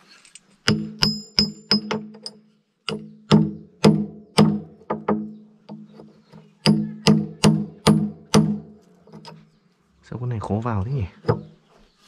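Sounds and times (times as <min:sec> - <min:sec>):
hammer striking steel pin: 0:00.6 - 0:05.8, 0:06.6 - 0:08.7.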